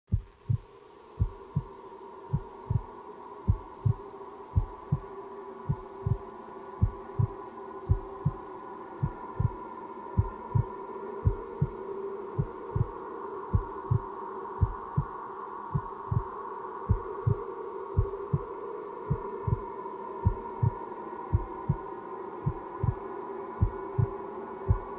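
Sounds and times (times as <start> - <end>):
heartbeat thumps: 0.1 - 0.6, 1.2 - 1.7, 2.3 - 2.9, 3.5 - 4.0, 4.6 - 5.0, 5.7 - 8.4, 9.0 - 9.6, 10.2 - 11.7, 12.4 - 14.0, 14.6 - 15.1, 15.7 - 16.3, 16.9 - 17.4, 18.0 - 18.5, 19.1 - 21.8, 22.5 - 23.0, 23.6 - 24.1, 24.7 - 24.9
steady drone: 0.2 - 24.9.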